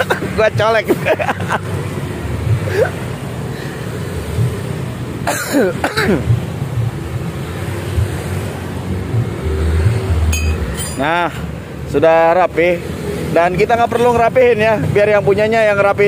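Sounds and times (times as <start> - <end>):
person coughing: 0.0 - 0.4, 2.7 - 3.0, 5.3 - 6.3.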